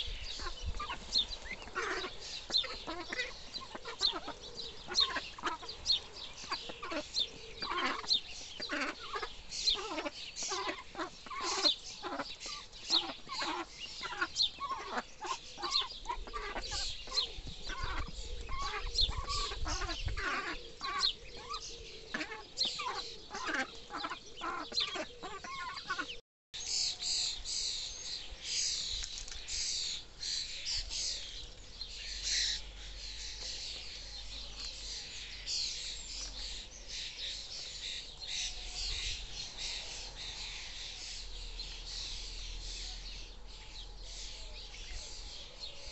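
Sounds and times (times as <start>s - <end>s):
adult ducks soft calls: 0.0s - 28.8s
ducklings peeping: 0.0s - 45.9s.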